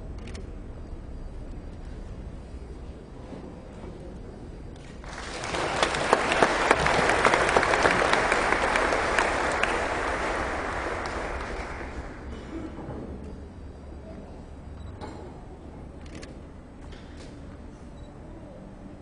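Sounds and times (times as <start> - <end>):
audience applauding: 5.0 - 12.4.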